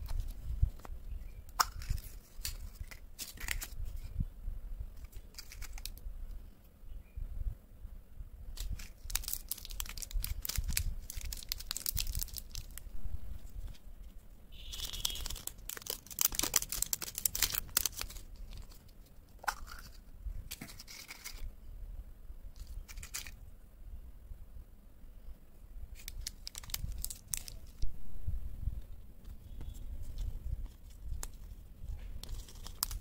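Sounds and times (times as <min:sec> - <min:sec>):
candy wrappers crinkling: 0:01.6 - 0:04.0, 0:05.0 - 0:06.0, 0:08.6 - 0:13.0, 0:14.5 - 0:21.5, 0:22.6 - 0:23.4, 0:26.0 - 0:27.8, 0:30.0 - 0:33.0.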